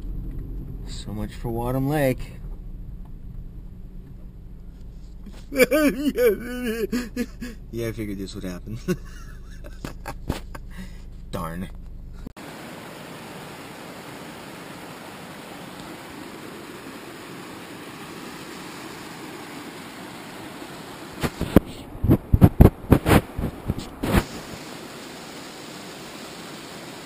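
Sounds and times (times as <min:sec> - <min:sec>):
creek rushing over rocks: 0:12.4 - 0:27.0
loud thumps and knocks: 0:21.2 - 0:24.2.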